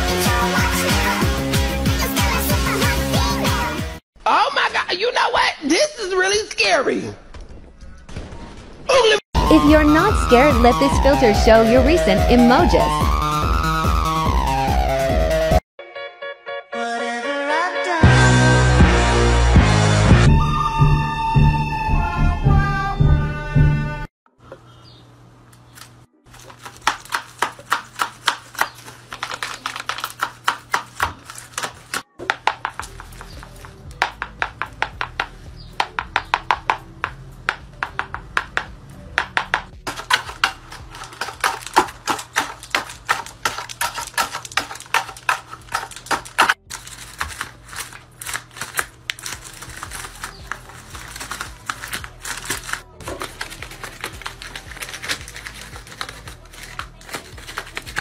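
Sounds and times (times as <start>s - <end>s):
papery clacks of paper puppets: 25.8s - 36.7s, 39.3s - 58.0s.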